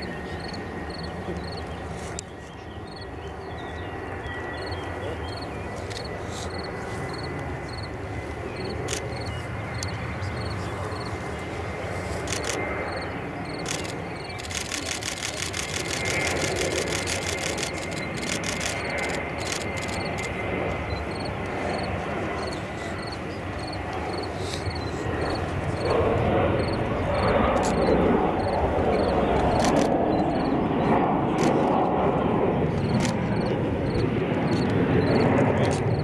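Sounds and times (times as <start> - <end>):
distant jet engine rumble: 0.0 - 36.0
fast run of high clicks: 12.2 - 12.6, 13.5 - 20.4, 29.4 - 30.0.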